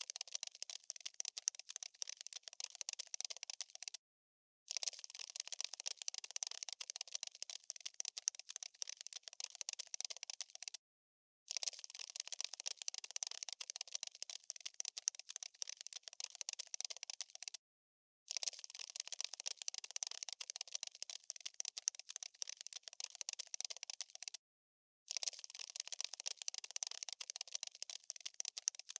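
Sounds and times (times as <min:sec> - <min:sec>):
skittering clicks and scratches: 0:25.1 - 0:28.9.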